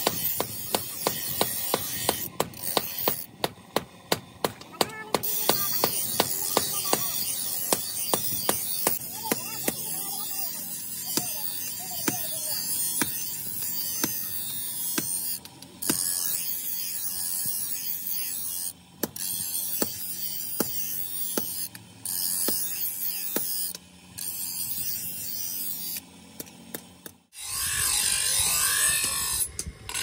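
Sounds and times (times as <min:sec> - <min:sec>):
blade grinding on stone wheel: 0:00.0 - 0:03.4, 0:04.7 - 0:26.1, 0:27.2 - 0:30.0
bench grinder humming: 0:00.0 - 0:30.0.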